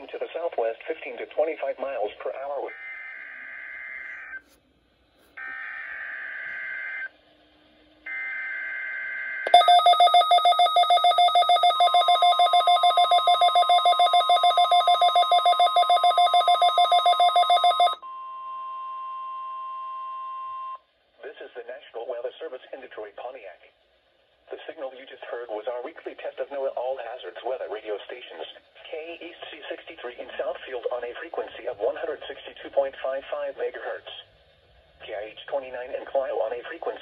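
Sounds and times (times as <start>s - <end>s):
rapid pulsed alarm beep: 9.5s - 18.3s.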